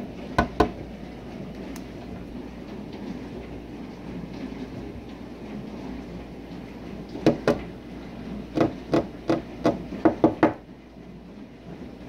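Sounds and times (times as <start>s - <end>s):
sharp knocks: 7.2s - 7.6s, 8.6s - 10.6s.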